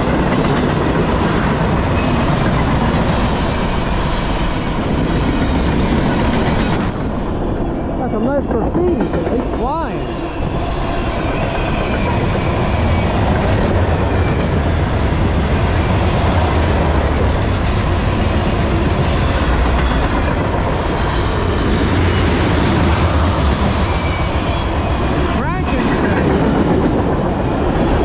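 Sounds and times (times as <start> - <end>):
wheels clickety-clack: 0.0 - 3.9, 8.4 - 9.8
freight train wheels rumbling: 0.0 - 28.0.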